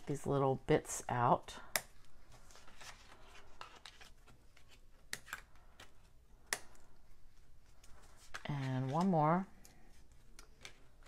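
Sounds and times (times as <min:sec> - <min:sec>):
paper rustling: 0:02.2 - 0:06.1.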